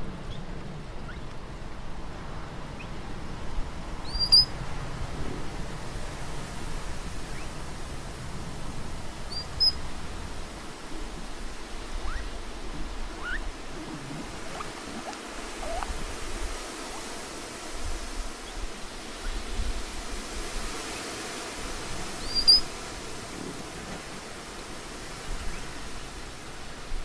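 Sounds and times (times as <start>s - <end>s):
steady outdoor hiss: 0.0s - 27.0s
sharp high animal chirp: 4.1s - 4.5s, 12.0s - 12.3s, 13.2s - 13.4s, 14.0s - 15.9s, 22.2s - 22.6s
faint rising animal squeaks: 12.0s - 12.3s, 13.1s - 15.9s.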